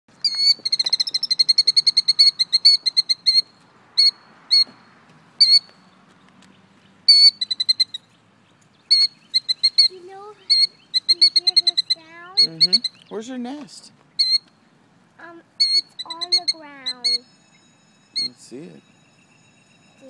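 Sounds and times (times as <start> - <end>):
bird shrill alarm call: 0.2 - 4.8, 5.4 - 5.7, 7.1 - 8.2, 8.8 - 13.2, 14.1 - 14.5, 15.6 - 20.0.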